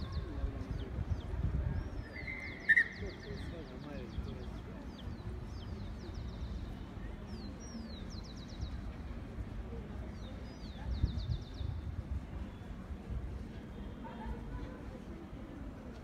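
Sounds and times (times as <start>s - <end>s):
songbird singing: 0.0s - 9.2s.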